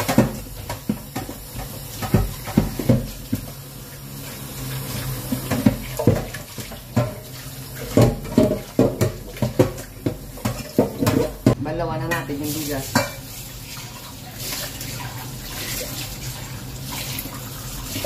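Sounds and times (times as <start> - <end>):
tap water running into sink: 0.0 - 11.6, 12.4 - 18.0
metal pot knocking against sink: 5.4 - 11.6.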